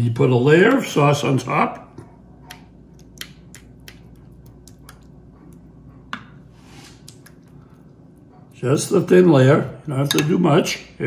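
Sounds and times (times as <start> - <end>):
spoon clicking on glass bowl: 10.1 - 10.4.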